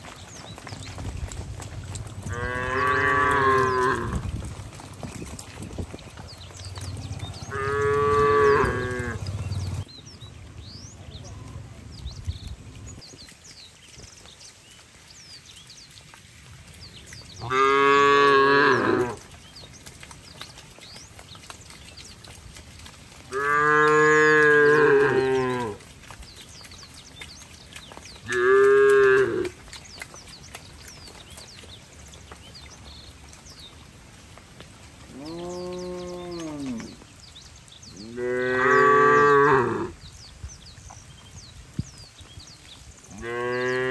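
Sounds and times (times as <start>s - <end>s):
cattle mooing: 2.0s - 4.3s, 6.8s - 9.8s, 17.4s - 19.2s, 23.3s - 25.8s, 28.3s - 29.5s.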